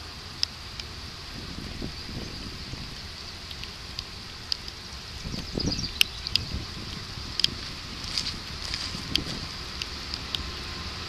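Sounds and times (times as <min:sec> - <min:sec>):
high-pitched hiss: 0:00.0 - 0:11.0
wind rumble on microphone: 0:00.0 - 0:11.0
sharp ticks: 0:00.4 - 0:01.0, 0:02.9 - 0:10.5.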